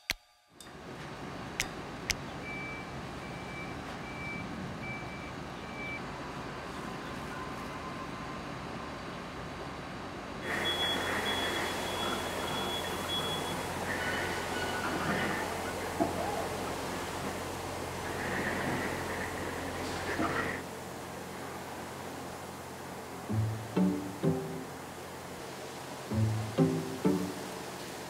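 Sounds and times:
forklift warning beeps: 2.4 - 6.1, 10.4 - 15.4.

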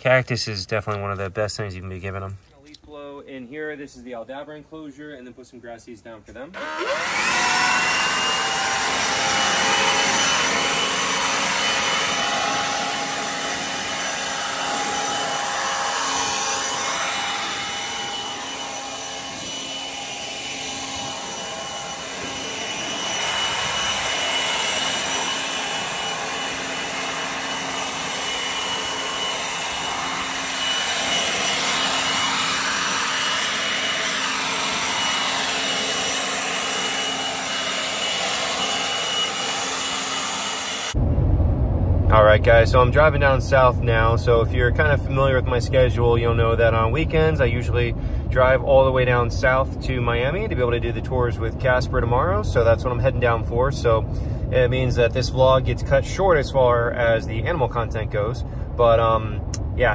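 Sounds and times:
leaf blower running: 6.6 - 41.0.

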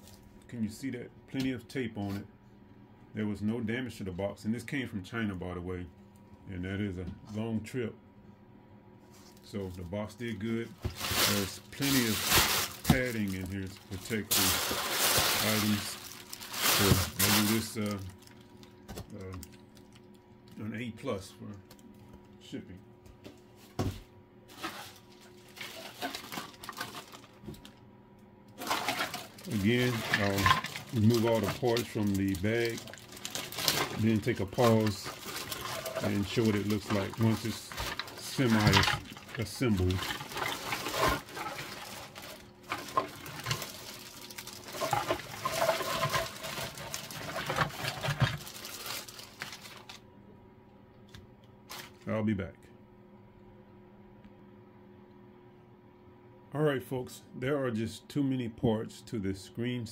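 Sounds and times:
plastic bag crinkling: 9.2 - 20.6, 24.5 - 27.8, 28.6 - 50.0, 51.7 - 52.1.

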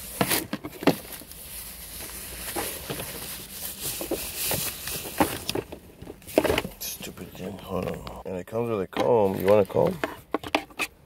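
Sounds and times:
packaging rustling and crinkling: 0.0 - 6.8.

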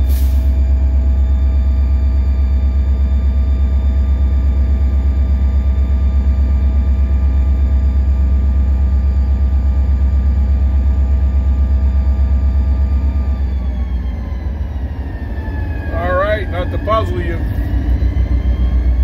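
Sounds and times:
diesel locomotive engine rumbling: 0.0 - 19.0
steady whine: 0.0 - 19.0.

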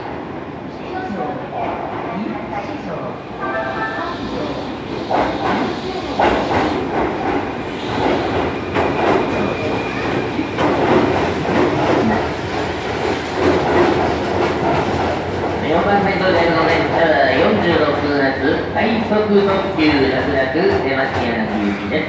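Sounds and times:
train wheels clacking over rail joints: 5.0 - 15.6.

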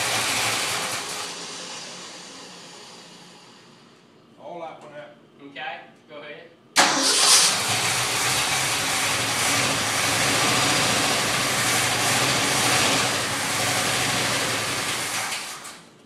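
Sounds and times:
truck engine running: 0.0 - 4.1, 6.8 - 15.6.

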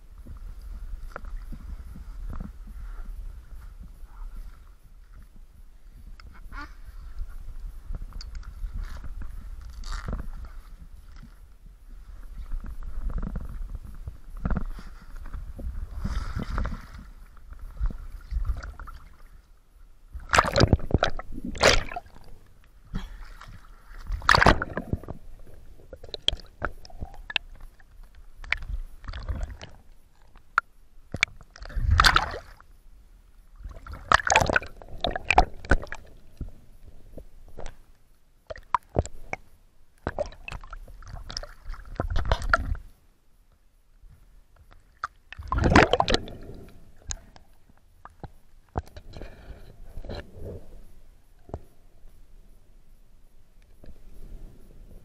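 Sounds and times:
water splashing and sloshing: 0.2 - 32.8, 33.5 - 43.0, 44.6 - 51.8
underwater gurgling: 12.0 - 19.5, 20.1 - 32.7, 33.6 - 37.8, 38.4 - 42.9, 44.9 - 50.9.

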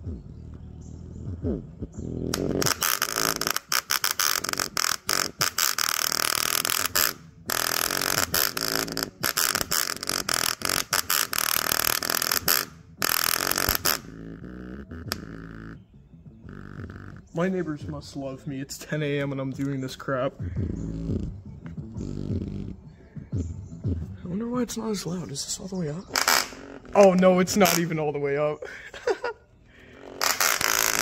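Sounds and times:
speaker distorted buzz: 0.0 - 17.6, 20.4 - 24.1, 26.0 - 28.0, 29.7 - 31.0
bass-heavy music: 0.0 - 28.0, 29.8 - 31.0.

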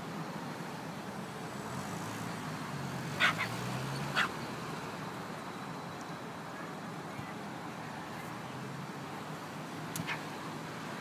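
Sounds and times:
small dog barking: 3.2 - 4.3.

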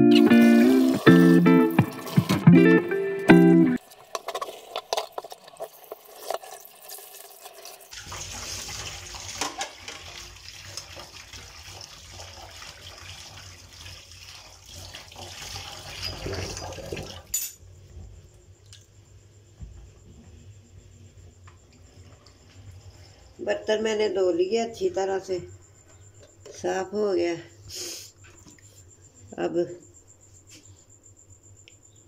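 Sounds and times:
tap water splashing into sink: 0.2 - 2.5, 7.9 - 17.3.

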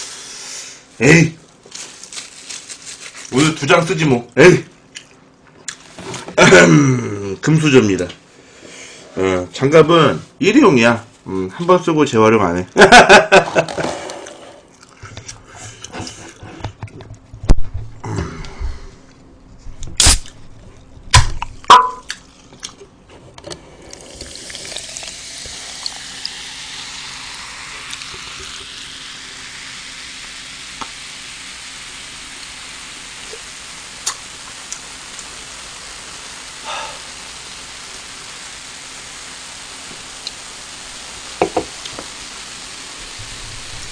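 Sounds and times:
can and cup clicks: 21.2 - 22.2
cola fizzing as poured: 23.8 - 43.9.

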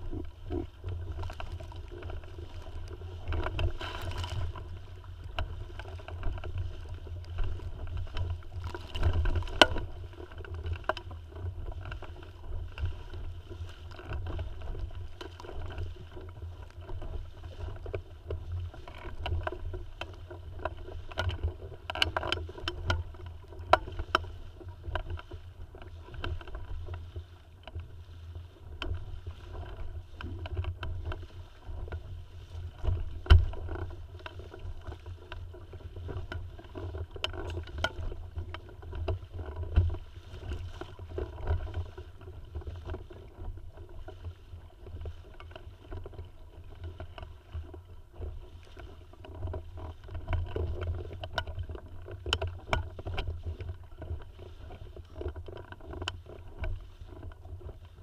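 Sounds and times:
water splashing against hull: 0.0 - 58.0.

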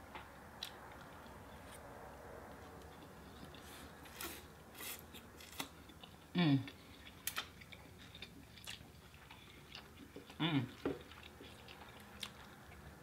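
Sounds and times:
food crunching while eating: 2.8 - 13.0.

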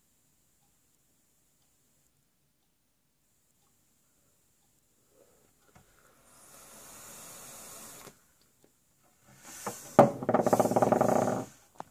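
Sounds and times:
vapour blown out: 6.2 - 8.2.

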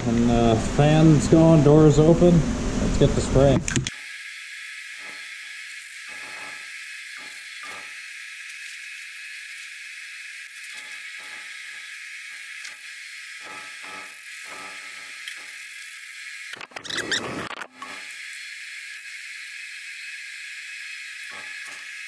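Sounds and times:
ventilation fan hiss: 0.0 - 3.8.

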